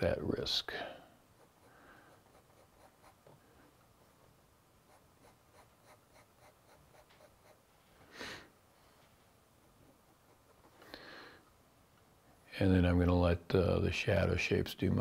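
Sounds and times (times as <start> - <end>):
pen nib scratching on paper: 1.3 - 3.3, 4.8 - 7.6, 10.0 - 10.8.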